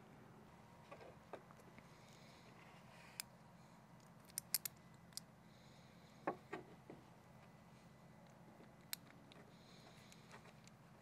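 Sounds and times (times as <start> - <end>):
small parts clicking and tapping: 4.0 - 5.3, 8.2 - 10.8.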